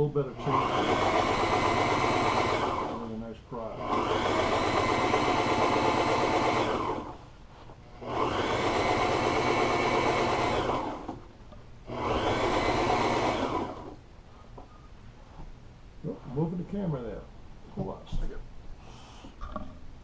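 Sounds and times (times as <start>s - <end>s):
sewing machine stitching: 0.4s - 3.1s, 3.8s - 7.2s, 8.0s - 11.2s, 11.9s - 14.0s.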